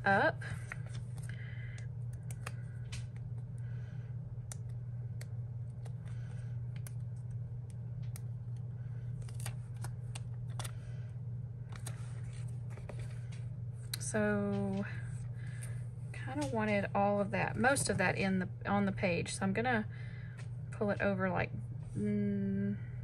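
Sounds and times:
steady low hum: 0.0s - 23.0s
plastic stickers rustling: 9.1s - 10.8s, 11.7s - 13.4s.

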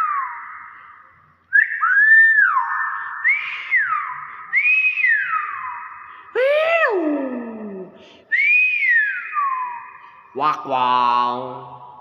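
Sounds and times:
bird whistling: 0.0s - 6.2s, 8.3s - 10.3s.

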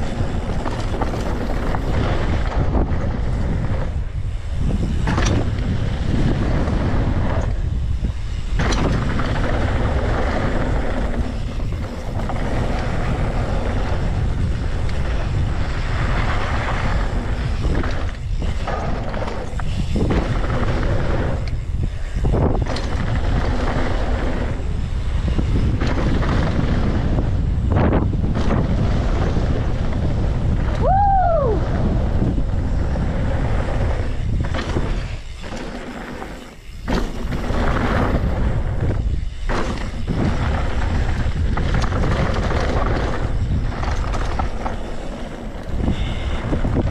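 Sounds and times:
bike knocking: 0.0s - 31.0s, 31.6s - 46.9s
wind buffeting microphone: 0.0s - 46.9s
tyres rolling on gravel: 31.6s - 46.9s.

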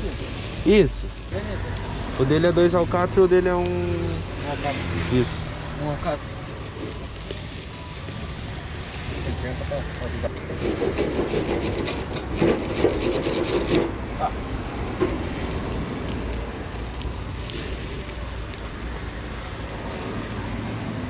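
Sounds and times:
fire rushing: 0.0s - 21.0s
skewers clicking on grill grate: 10.2s - 20.9s.

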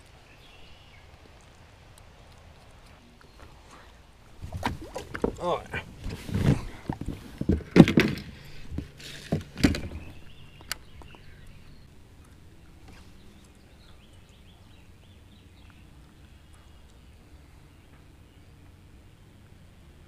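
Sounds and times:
thumps on plastic kayak: 6.0s - 10.1s.

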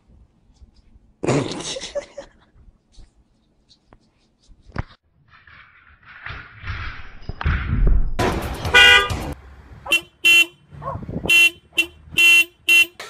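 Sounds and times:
car horn beeps: 8.7s - 13.0s.

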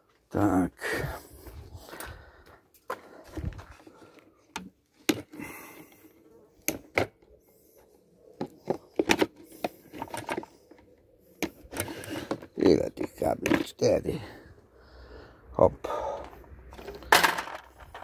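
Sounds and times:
plastic parts clicking and knocking: 3.7s - 6.0s, 6.6s - 7.3s, 8.4s - 13.8s, 16.2s - 18.0s.

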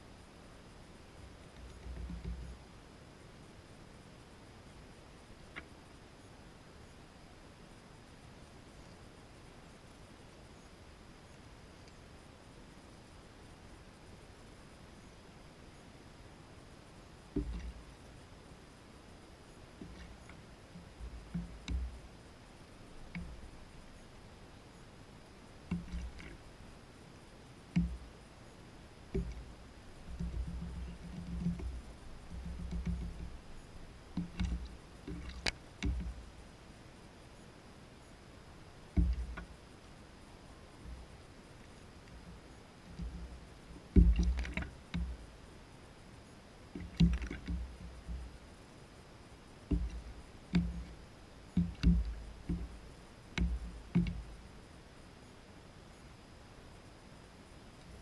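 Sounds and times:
water sloshing: 19.7s - 22.1s, 25.6s - 26.7s, 29.0s - 36.4s, 39.0s - 39.6s, 42.2s - 45.4s, 46.7s - 48.4s, 49.6s - 54.4s.

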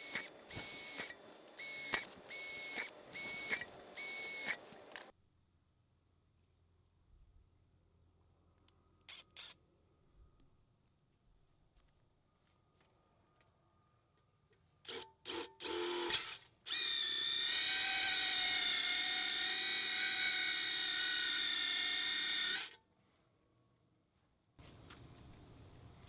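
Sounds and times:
cordless drill boring through steel: 0.0s - 5.1s, 14.9s - 22.8s.

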